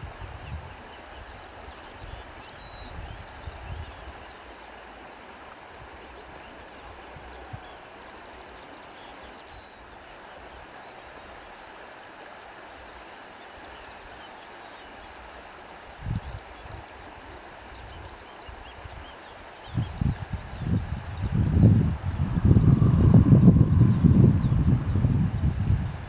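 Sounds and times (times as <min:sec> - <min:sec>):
low wind gusts buffeting: 0:00.0 - 0:00.8, 0:19.7 - 0:26.0
wind hiss: 0:00.0 - 0:26.0.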